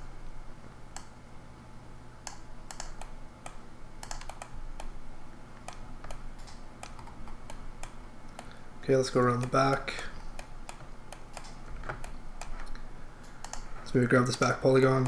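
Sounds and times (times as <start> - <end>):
low steady hum: 0.0 - 15.0
keyboard and mouse clicks: 2.3 - 5.0, 5.6 - 8.6, 10.4 - 13.9.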